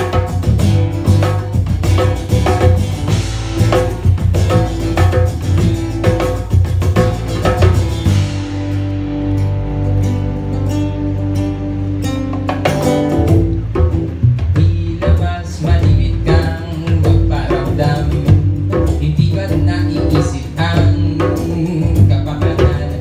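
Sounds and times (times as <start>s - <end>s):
acoustic guitar: 0.0s - 23.0s
electric bass: 0.0s - 23.0s
hand drum: 0.0s - 23.0s
man singing: 14.6s - 23.0s.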